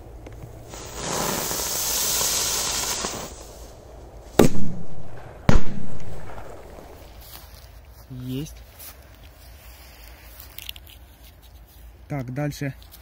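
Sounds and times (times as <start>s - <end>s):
firecracker hissing: 0.4s - 4.7s
firecracker sharp bangs: 0.7s - 3.5s, 4.4s - 7.1s.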